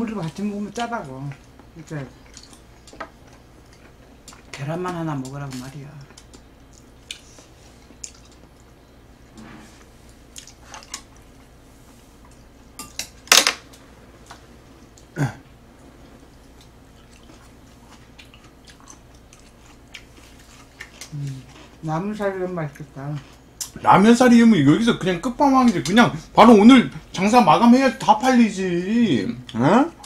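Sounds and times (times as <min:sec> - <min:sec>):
quiet eating sounds: 0:00.0 - 0:30.0.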